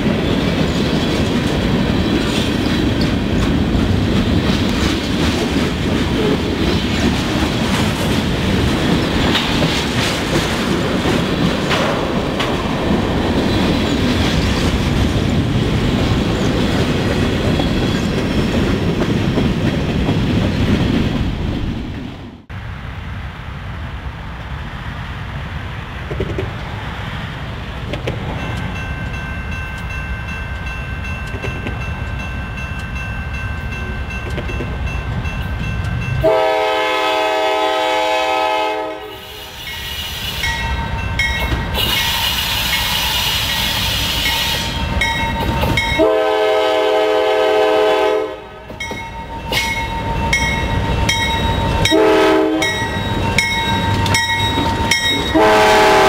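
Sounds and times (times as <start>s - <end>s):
wheels clicking over rail joints: 0.0s - 22.0s, 27.8s - 36.2s
locomotive air horn: 36.2s - 40.6s, 41.8s - 44.8s, 46.0s - 48.6s, 51.8s - 52.8s, 55.3s - 56.0s.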